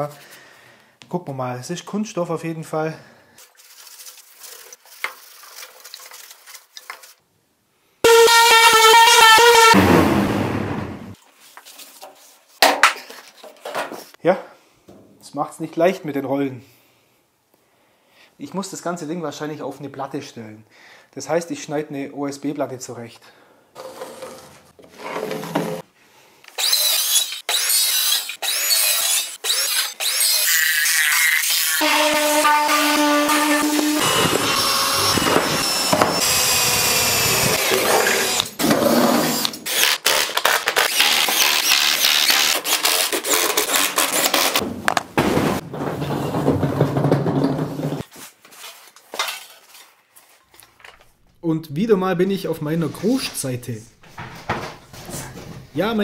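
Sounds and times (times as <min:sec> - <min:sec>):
hand saw cutting board: 0:08.1 - 0:11.0, 0:26.5 - 0:44.6.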